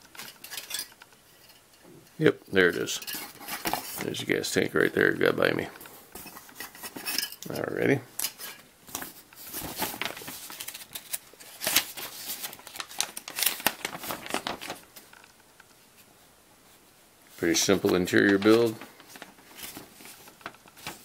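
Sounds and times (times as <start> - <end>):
paper crackling and rustling: 3.2 - 4.3, 8.2 - 16.1, 17.4 - 21.0.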